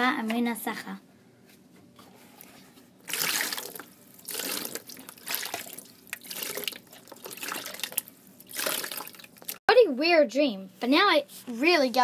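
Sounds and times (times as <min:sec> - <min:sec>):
water splashing over hands: 0:03.1 - 0:09.6.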